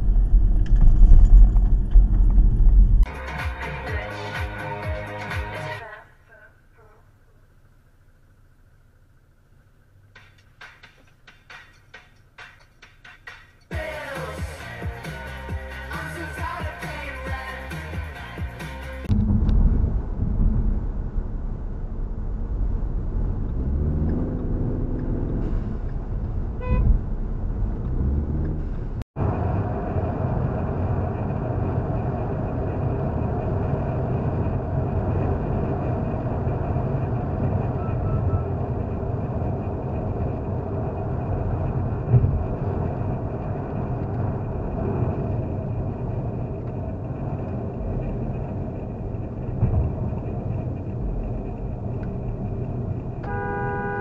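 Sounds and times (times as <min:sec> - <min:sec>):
road and engine noise in car: 0:00.0 - 0:54.0
car horn toot: 0:26.6 - 0:27.0, 0:53.2 - 0:54.0.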